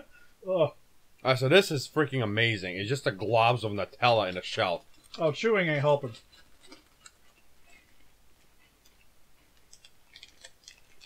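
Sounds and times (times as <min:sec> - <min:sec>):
faint clicks and crackles: 0:03.8 - 0:11.0.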